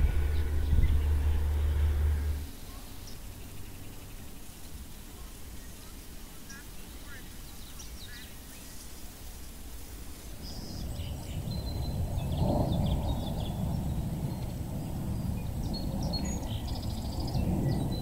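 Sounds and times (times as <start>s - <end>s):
low rushing outdoor noise: 0.0s - 18.0s
small birds chirping: 0.0s - 18.0s.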